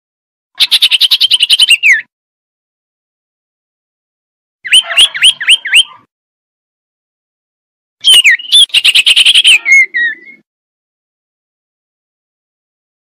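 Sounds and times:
bird calling with notes and trill: 0.6 - 2.1, 4.6 - 6.1, 8.0 - 10.5.

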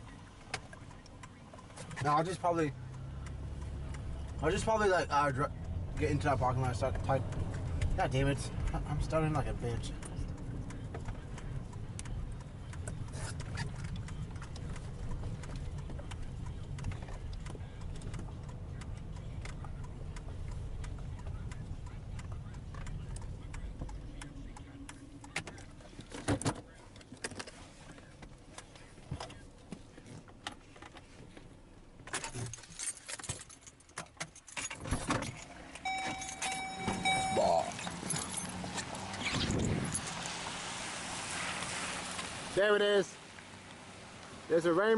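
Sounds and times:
car engine and road rumble: 0.0 - 44.9
clicks and knocks inside car: 5.9 - 40.0
short beeping chime: 35.8 - 38.4.

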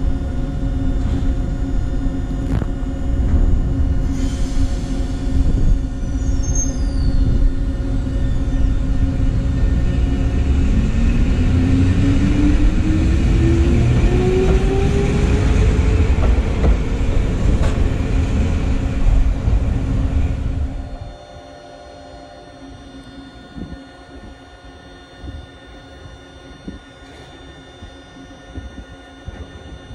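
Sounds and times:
railcar wheels rumbling on rail: 0.0 - 21.5.

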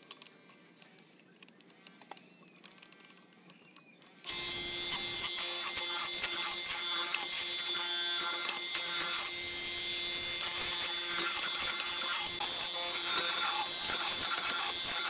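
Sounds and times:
mortiser motor hum: 4.3 - 15.0.

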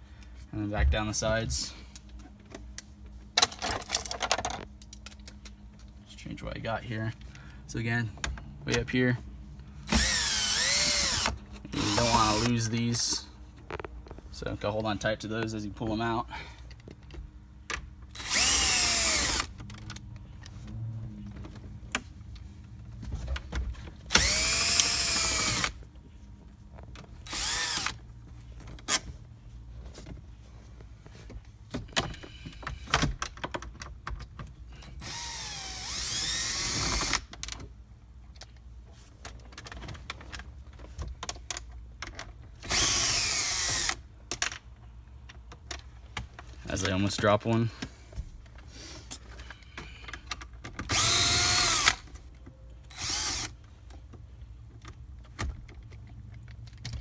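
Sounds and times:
cordless drill motor: 9.9 - 12.6, 18.1 - 19.5, 24.1 - 25.8, 27.2 - 28.0, 35.0 - 37.3, 42.6 - 44.0, 50.9 - 52.1, 52.9 - 53.6.

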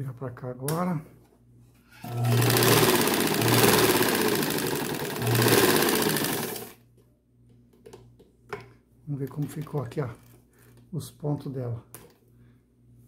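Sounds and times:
motor hum: 2.0 - 6.8.

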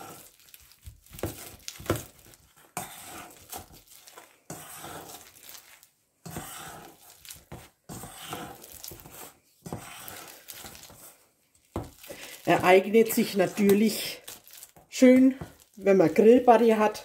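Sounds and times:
potato masher squishing food: 0.0 - 17.0.

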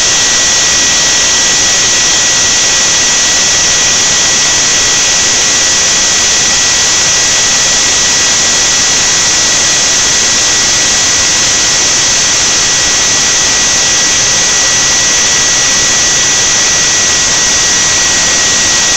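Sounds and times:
router carving foam hiss: 0.0 - 18.9
router spindle motor whining: 0.0 - 18.9.

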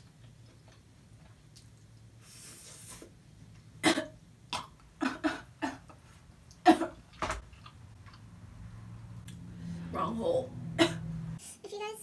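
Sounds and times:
woman coughing: 3.8 - 4.2, 5.0 - 5.9, 6.6 - 7.0, 10.8 - 11.1.

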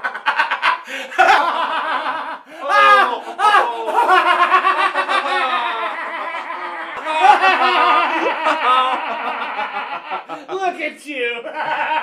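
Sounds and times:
men laughing loudly: 0.0 - 10.8, 11.4 - 12.0.

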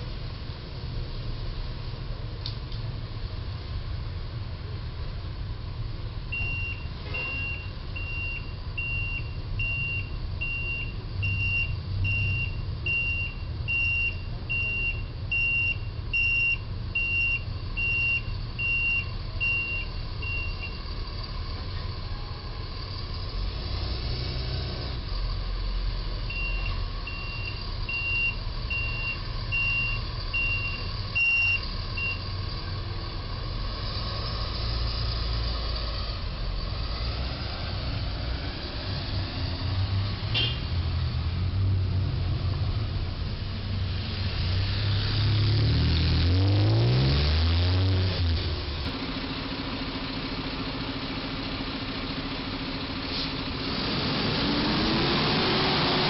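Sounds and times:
truck engine rumble: 0.0 - 56.0
truck reversing alarm beeping: 6.3 - 21.3, 26.1 - 32.6, 38.7 - 40.7.

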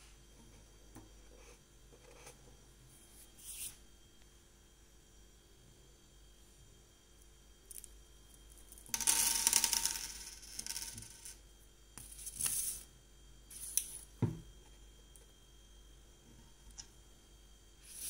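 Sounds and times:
light knocks on tabletop: 14.2 - 14.5.

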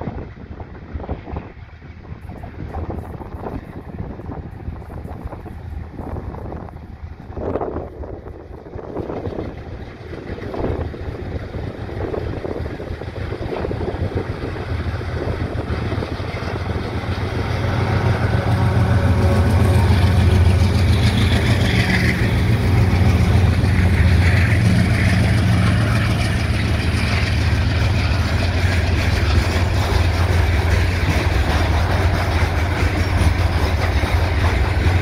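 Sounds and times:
deep locomotive engine drone: 0.0 - 35.0
freight wagons rolling past: 13.4 - 35.0.

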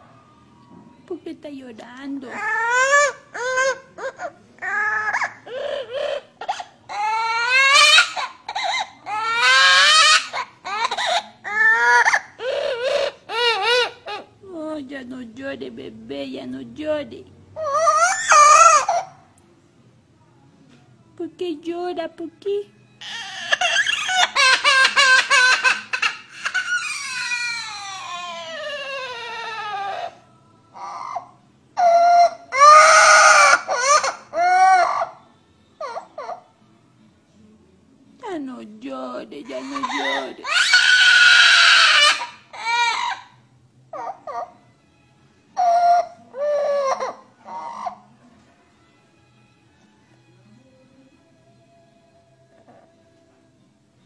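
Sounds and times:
parrot mimicking baby crying: 2.2 - 14.4, 17.6 - 19.3, 23.0 - 36.6, 39.4 - 44.7, 45.5 - 48.2.

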